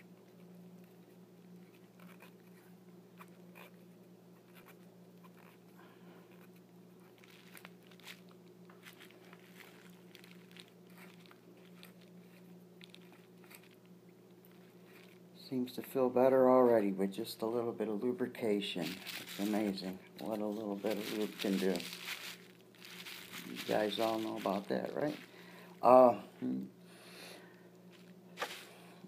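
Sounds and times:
steady low hum: 0.0s - 29.0s
small parts clicking and rubbing: 20.2s - 25.3s.

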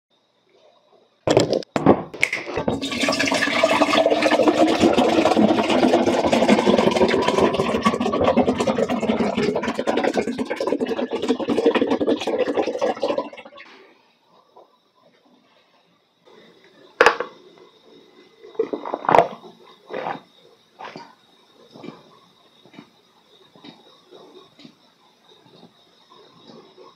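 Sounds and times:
juice pouring into a glass: 2.5s - 13.6s.

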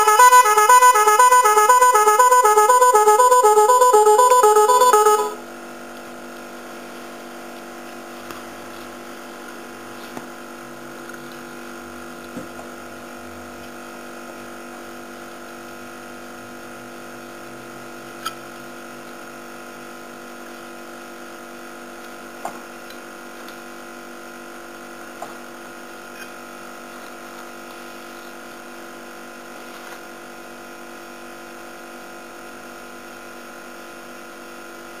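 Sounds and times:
multi-tone car horn tune: 0.0s - 5.4s.

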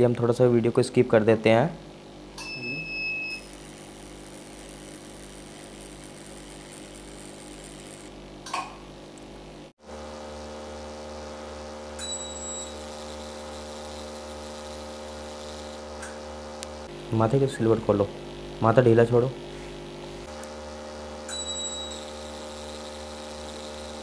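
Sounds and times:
laser machine humming: 1.9s - 9.2s, 9.9s - 24.0s
short high beep: 2.4s - 3.5s.

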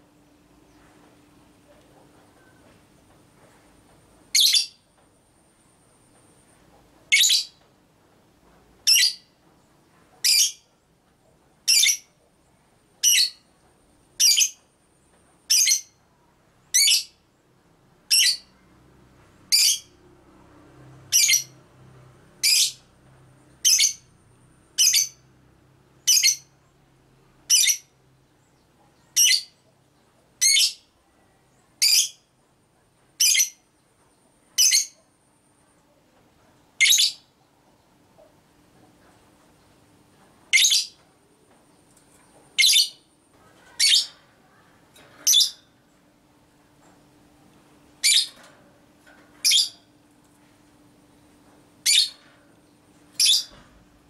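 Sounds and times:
lovebird shrill calls: 48.0s - 48.3s, 53.2s - 53.5s.

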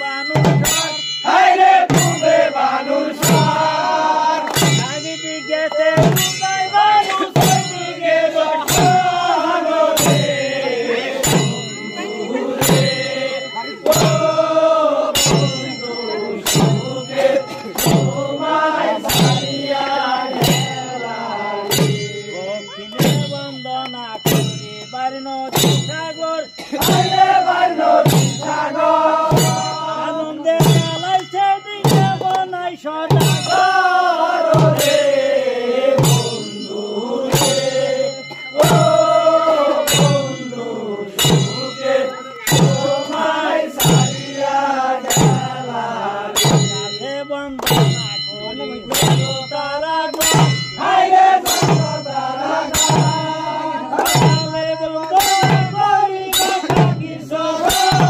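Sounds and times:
men singing a chant: 0.0s - 58.0s
percussion beat of sharp strikes: 0.0s - 58.0s.

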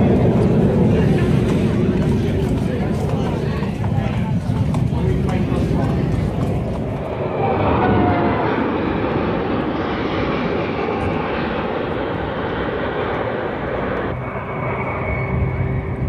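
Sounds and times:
jet plane roaring overhead: 0.0s - 16.0s
thin high whine: 14.1s - 16.0s.

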